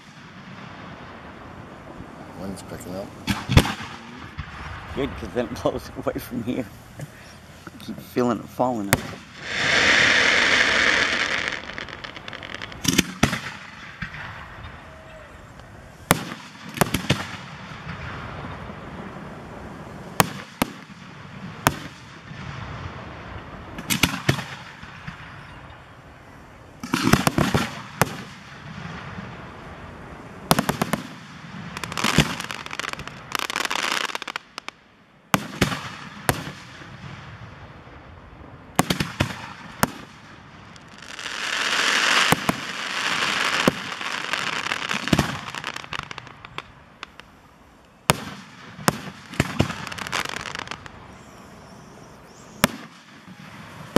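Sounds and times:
firework rushing hiss: 0:00.0 - 0:25.4, 0:26.2 - 0:36.9, 0:38.8 - 0:53.9
crackling firework reports: 0:00.0 - 0:53.9
firework shell bursts: 0:09.0 - 0:14.8.

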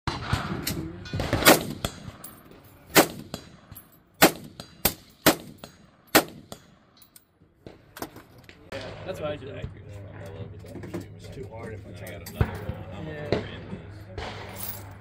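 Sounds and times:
rifle shots: 0:00.1 - 0:02.3, 0:02.9 - 0:06.8.

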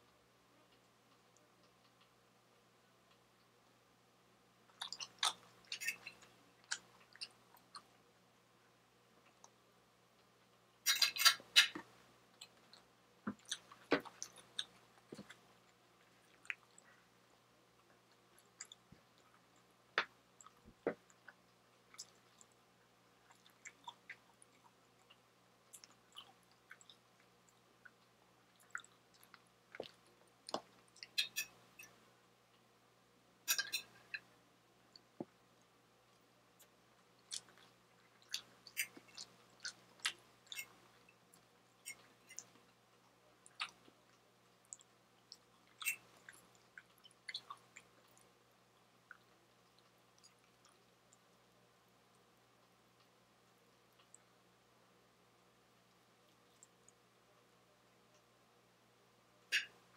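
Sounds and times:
crackly chewing bursts: 0:04.6 - 0:32.7, 0:33.4 - 0:54.6, 0:55.8 - 0:57.1
close-up chewing: 0:04.7 - 0:08.0, 0:10.9 - 0:19.8, 0:20.4 - 0:32.6, 0:34.9 - 0:53.2.

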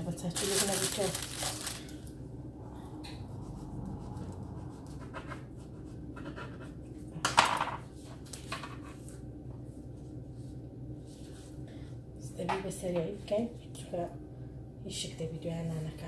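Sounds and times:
pastry sheets rustling: 0:00.0 - 0:02.1
low steady hum: 0:00.0 - 0:16.0.

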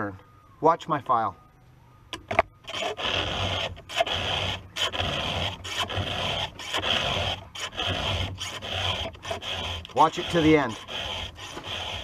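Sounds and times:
file rasping on chain tooth: 0:02.7 - 0:12.0.

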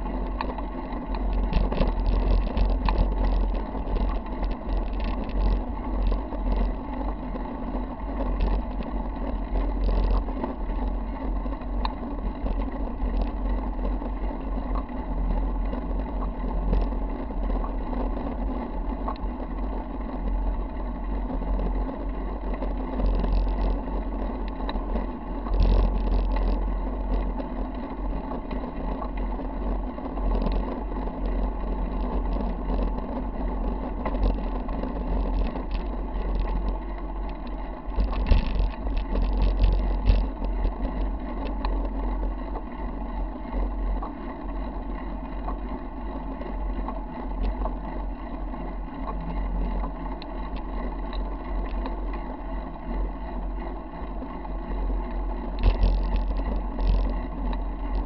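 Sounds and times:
bike clicks and rattles: 0:00.0 - 0:58.0
wind and tyre rumble: 0:00.0 - 0:58.0.

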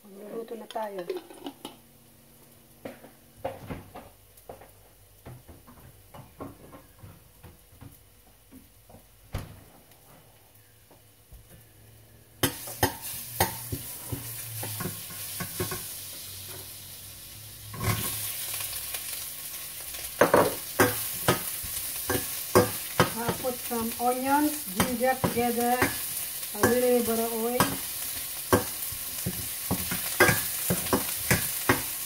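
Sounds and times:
onions sizzling in oil: 0:12.3 - 0:32.0.

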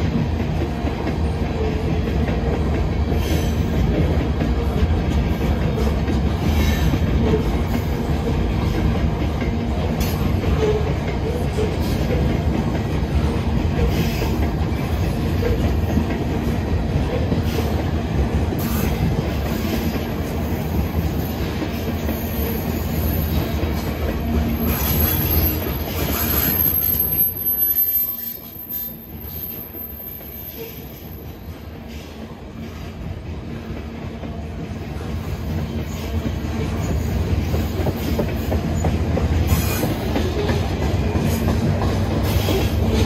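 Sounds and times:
freight cars rumbling on rails: 0:00.0 - 0:43.0
high wheel squeal: 0:24.4 - 0:31.3.

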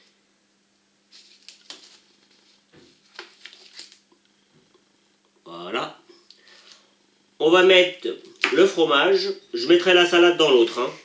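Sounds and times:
plastic packaging crinkles and clicks: 0:01.1 - 0:04.3.

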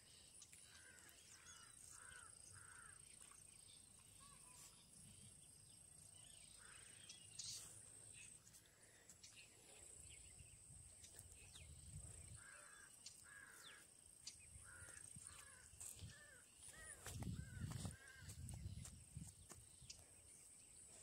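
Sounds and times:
crows cawing faintly: 0:00.6 - 0:03.3, 0:12.2 - 0:13.9, 0:14.5 - 0:18.7.

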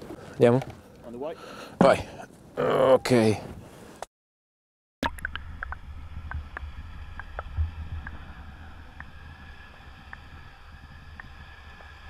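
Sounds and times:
small underwater clicks: 0:05.0 - 0:12.0
underwater rumble of moving water: 0:05.0 - 0:12.0.

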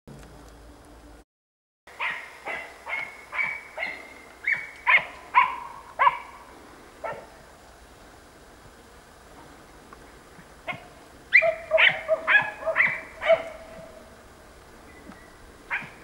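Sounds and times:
dog barking: 0:02.0 - 0:06.4, 0:07.0 - 0:07.3, 0:10.7 - 0:14.0, 0:15.7 - 0:16.0.

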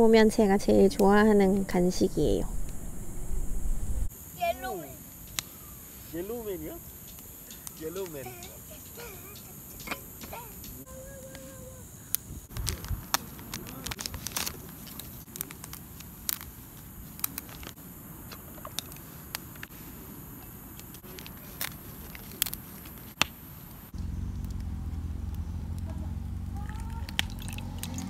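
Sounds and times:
steady low hum: 0:00.0 - 0:04.4
paper packet crinkling and tearing: 0:12.6 - 0:16.5.

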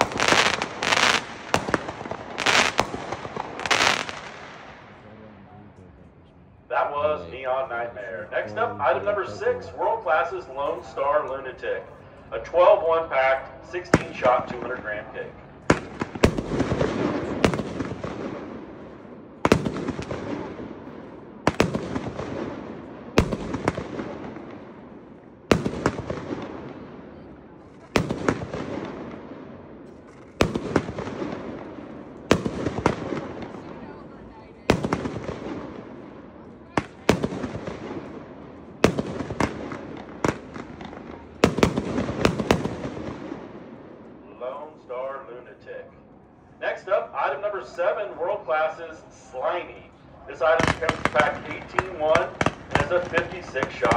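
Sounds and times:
firework shots with crackle: 0:00.0 - 0:04.8, 0:15.7 - 0:24.9, 0:25.5 - 0:34.0, 0:34.6 - 0:43.8, 0:50.6 - 0:53.9.

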